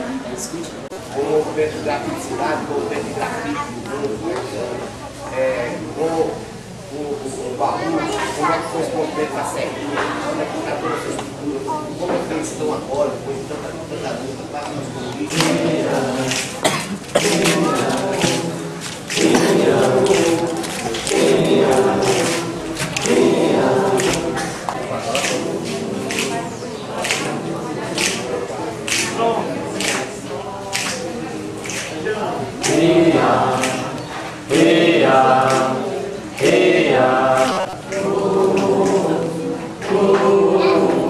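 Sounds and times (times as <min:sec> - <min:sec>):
group singing unaccompanied: 0:15.2 - 0:41.0.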